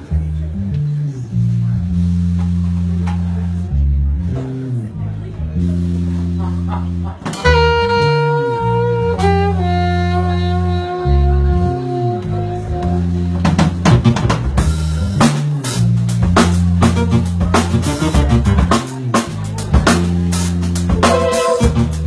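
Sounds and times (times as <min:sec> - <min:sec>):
drum kit: 0:00.0 - 0:22.0
electric bass: 0:00.0 - 0:22.0
saxophones holding long notes: 0:07.4 - 0:13.6, 0:21.0 - 0:22.0.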